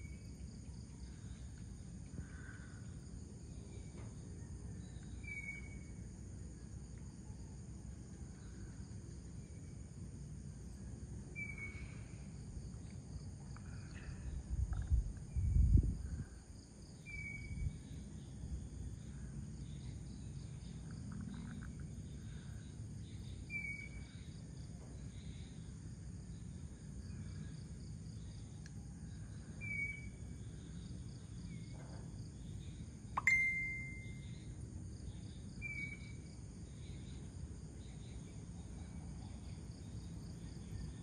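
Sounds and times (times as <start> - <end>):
crickets and insects chirring: 0.0 - 41.0
bird high note: 33.2 - 34.1.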